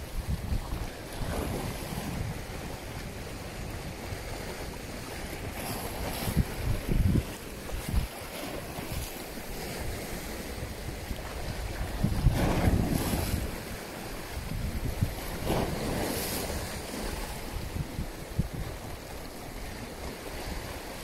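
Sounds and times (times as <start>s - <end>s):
sea waves washing: 0.0s - 21.0s
wind buffeting microphone: 0.0s - 21.0s.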